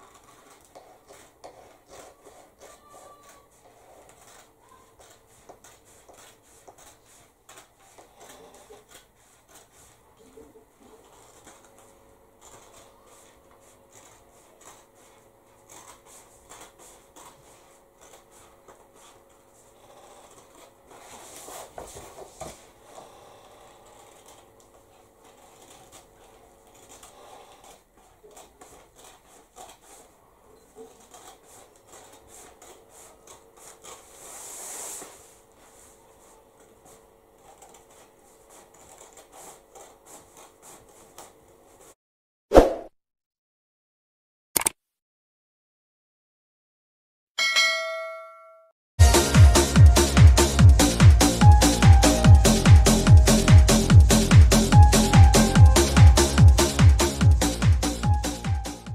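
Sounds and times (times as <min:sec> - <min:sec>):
scissors snipping fabric: 0:00.0 - 0:09.7, 0:12.4 - 0:15.0, 0:15.6 - 0:17.4.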